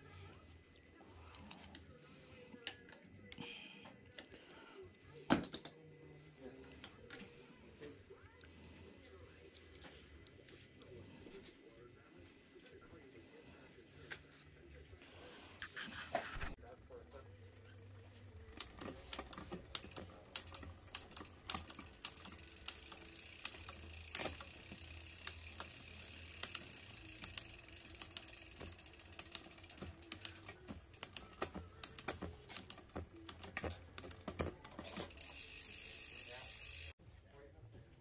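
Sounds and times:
bike chain running over cassette: 16.7s - 37.0s
sharp drivetrain clicks: 16.7s - 37.0s.

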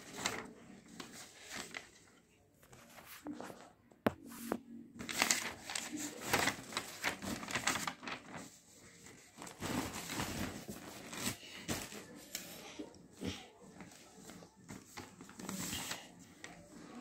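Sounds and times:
paper rustling and crinkling: 0.0s - 17.0s.

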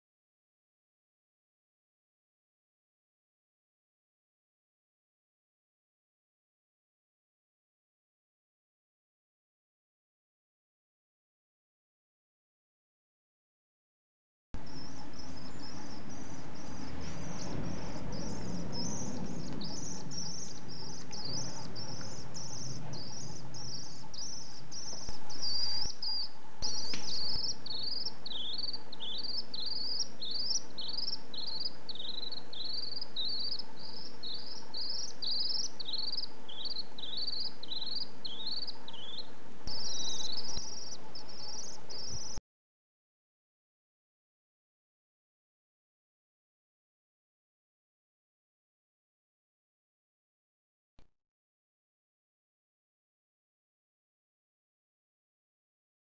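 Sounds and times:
faint steady hum: 14.6s - 42.4s
swift chirping calls: 14.6s - 42.4s.

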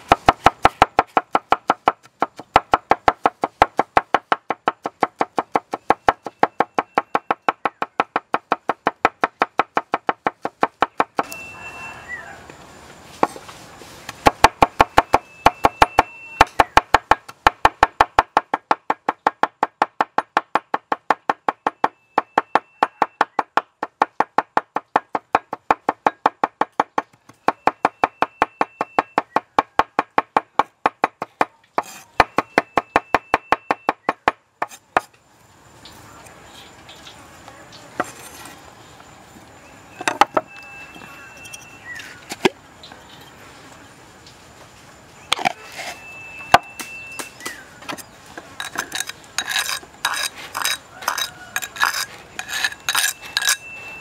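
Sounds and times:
knife chopping on wooden board: 0.0s - 11.3s, 14.2s - 35.1s.

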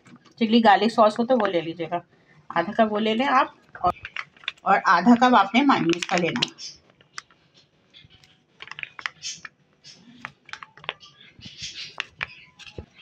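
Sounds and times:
plastic bottle clicking and crackling: 3.8s - 7.4s, 8.2s - 13.0s.

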